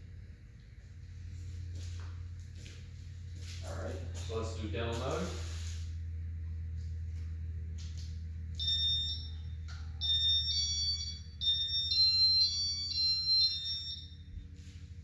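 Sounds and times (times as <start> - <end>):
high-pitched electronic beeping tune: 8.6 - 14.4.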